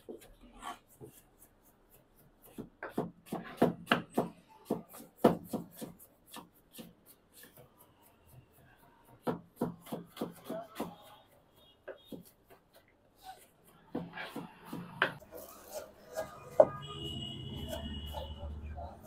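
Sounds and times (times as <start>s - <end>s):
knife chopping on cutting board: 2.4s - 7.8s, 9.2s - 11.2s, 13.8s - 16.8s.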